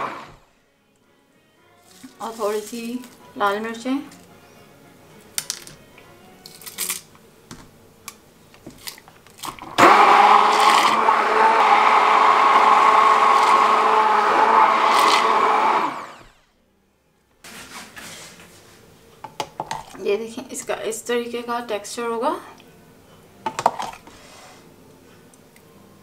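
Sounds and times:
stick blender running: 0.0 - 0.5, 9.5 - 16.5.

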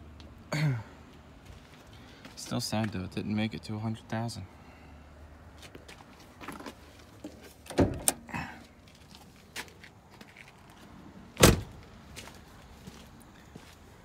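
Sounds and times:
car door thump: 7.7 - 8.2, 11.4 - 11.7.

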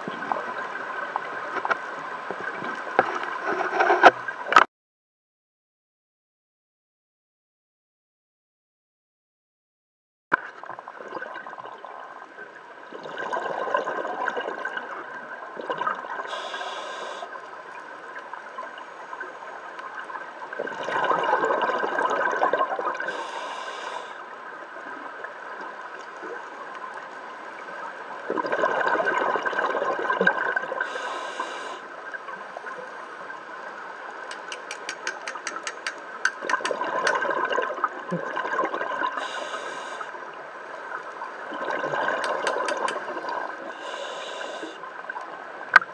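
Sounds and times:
rush of exhaled bubbles: 10.7 - 17.4, 20.5 - 24.2, 28.2 - 31.8, 36.4 - 40.2, 41.3 - 44.8
hissing regulator inhale: 16.3 - 17.4, 23.0 - 24.2, 30.8 - 31.9, 39.2 - 40.2, 43.7 - 44.8.

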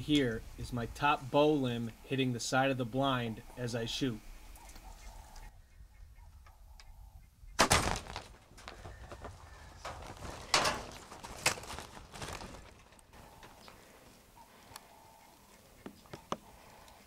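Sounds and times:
sharp knocks and scuffling: 7.6 - 13.6.

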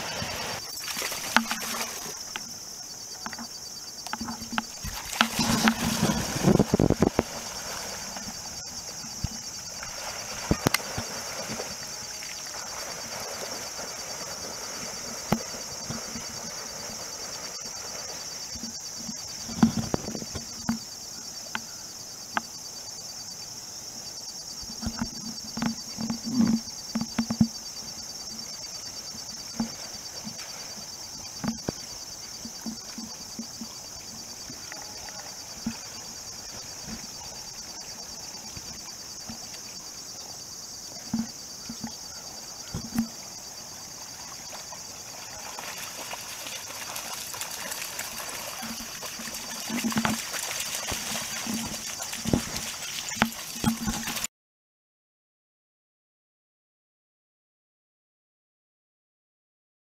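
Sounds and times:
dog splashing while swimming: 0.0 - 2.2, 9.7 - 18.5, 43.9 - 54.3
high-pitched insect drone: 0.0 - 54.3.

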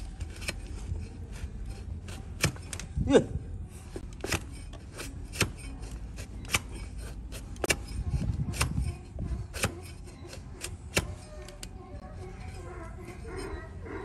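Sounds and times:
blade shaving hoof: 4.0 - 14.0.

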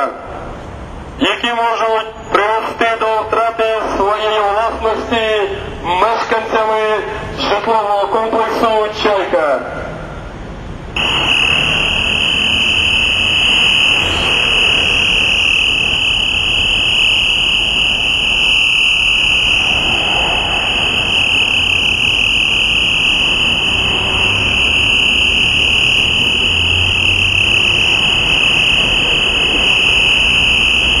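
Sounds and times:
street traffic: 0.0 - 31.0
high-pitched tone: 11.0 - 31.0.

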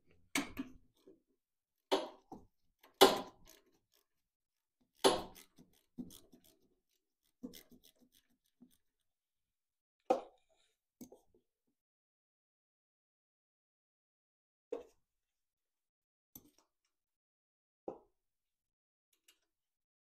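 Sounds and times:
wrench clicking on metal nut: 5.0 - 6.6.

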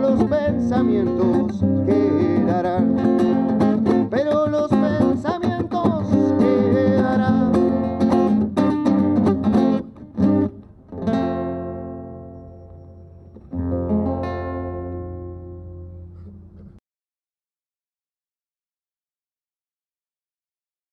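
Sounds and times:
acoustic guitar strumming: 0.0 - 16.7.

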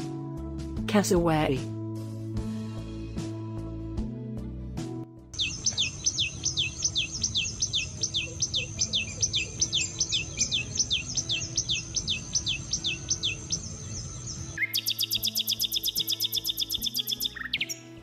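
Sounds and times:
nightingale song: 5.4 - 18.0
bird whistling descending note: 14.6 - 17.8.

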